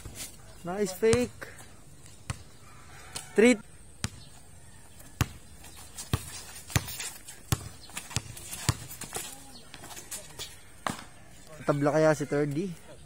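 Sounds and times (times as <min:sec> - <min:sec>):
basketball bouncing on concrete: 0:01.0 - 0:01.4, 0:02.2 - 0:02.5, 0:04.0 - 0:04.3, 0:05.1 - 0:10.0, 0:10.8 - 0:11.1.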